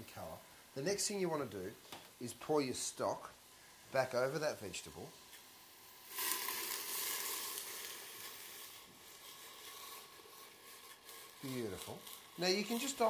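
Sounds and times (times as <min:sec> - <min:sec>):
liquid pouring into a pot: 0:05.4 - 0:13.0.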